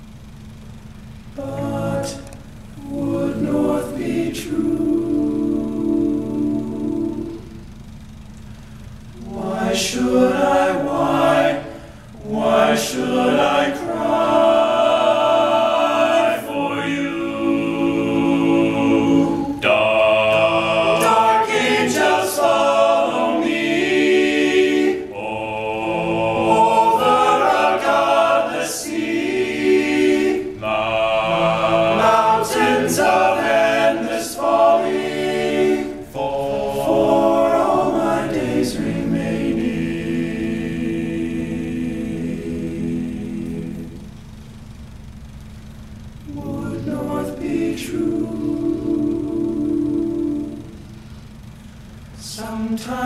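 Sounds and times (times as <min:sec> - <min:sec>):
male a cappella group singing: 0:01.4 - 0:07.7, 0:09.1 - 0:44.4, 0:46.2 - 0:51.0, 0:51.9 - 0:53.0.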